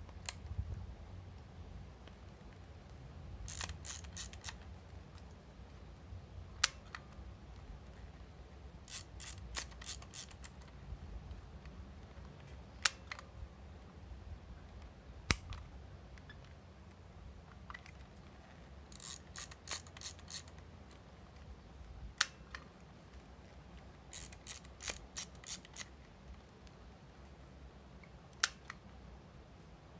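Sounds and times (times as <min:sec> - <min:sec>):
camera film advance ratcheting: 0:03.4 - 0:04.6, 0:08.9 - 0:10.6, 0:18.9 - 0:20.6, 0:24.1 - 0:25.9.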